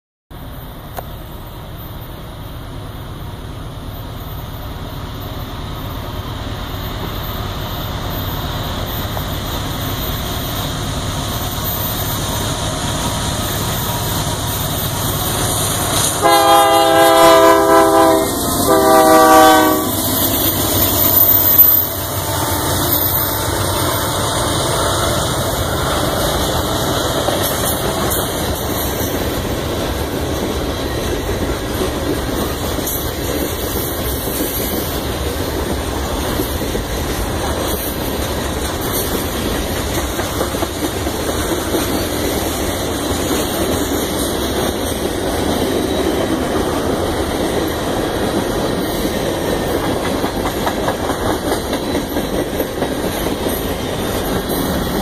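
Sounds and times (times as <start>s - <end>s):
train rolling rumble: 0.4s - 55.0s
locomotive air horn blasts: 16.2s - 20.0s, 21.9s - 25.2s
wheel clatter on rails: 25.6s - 55.0s.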